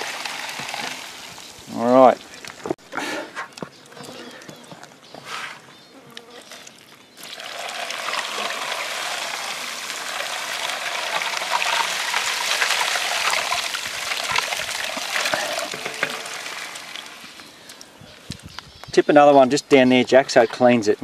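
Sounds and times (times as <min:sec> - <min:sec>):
water gushing down sluice: 0:00.0 - 0:01.8, 0:07.2 - 0:17.5.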